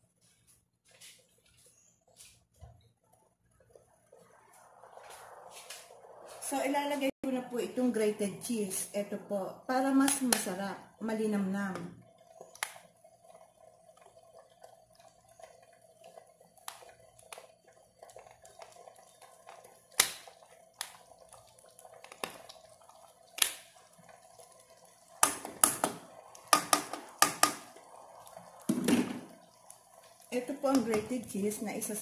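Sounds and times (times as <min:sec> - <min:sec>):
sauce bubbling and popping: 0:09.8 - 0:32.0.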